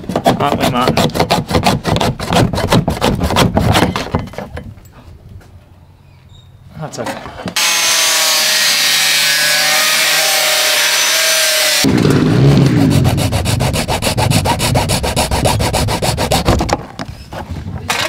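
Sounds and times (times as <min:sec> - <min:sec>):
hand saw sawing plastic: 0:00.0 - 0:04.0, 0:07.6 - 0:11.9, 0:12.7 - 0:16.8
angle grinder cutting plastic: 0:07.6 - 0:11.9, 0:12.6 - 0:16.8.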